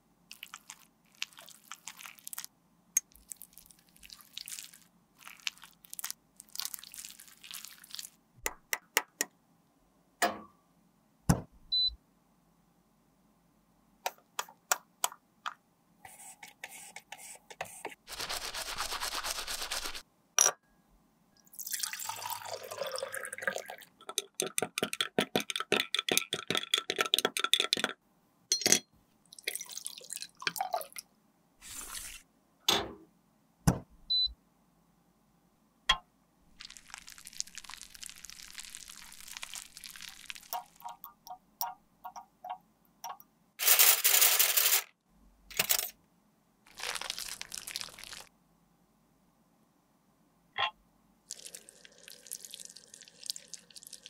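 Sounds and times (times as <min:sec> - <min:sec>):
liquid pouring and dripping: 0:00.3 - 0:08.2, 0:21.4 - 0:24.6, 0:29.3 - 0:31.0, 0:36.6 - 0:43.2, 0:46.7 - 0:48.3, 0:51.3 - 0:54.0
quick brush strokes: 0:18.0 - 0:20.0
glassware clicks and taps: 0:24.2 - 0:28.9, 0:40.6 - 0:43.2.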